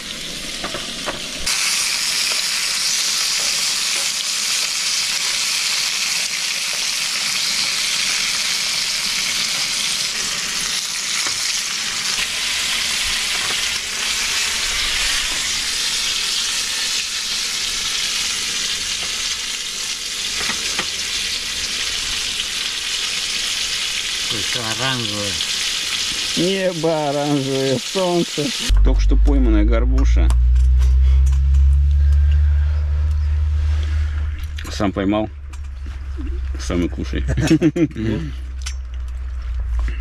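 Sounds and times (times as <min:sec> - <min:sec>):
fish sizzling in a pan: 0:00.0 - 0:28.7.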